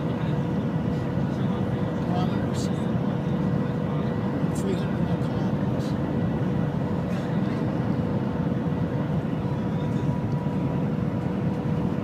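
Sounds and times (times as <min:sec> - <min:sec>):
train cabin low rumble: 0:08.8 - 0:12.0.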